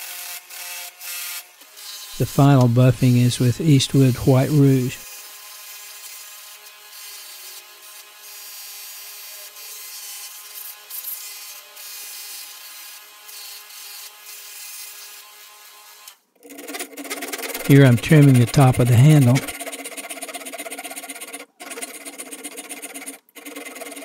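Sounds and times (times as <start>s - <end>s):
hammer head rubbing on buffing wheel: 16.5s - 24.0s.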